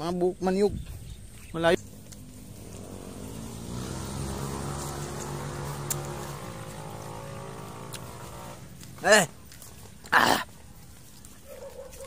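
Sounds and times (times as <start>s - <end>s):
motor engine running: 1.8s - 9.3s.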